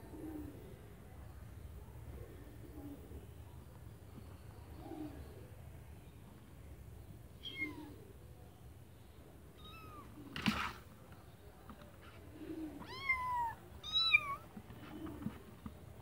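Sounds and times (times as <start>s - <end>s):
kittens meowing: 7.4s - 8.0s, 9.6s - 10.2s, 12.7s - 14.5s.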